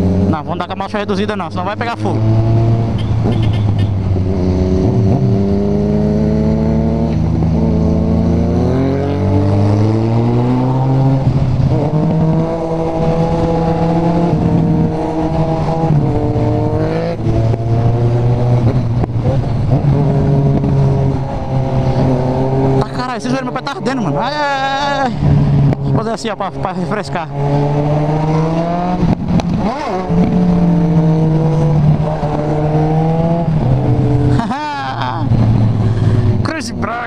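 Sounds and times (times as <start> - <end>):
motorcycle engine revving: 0.0 - 37.0.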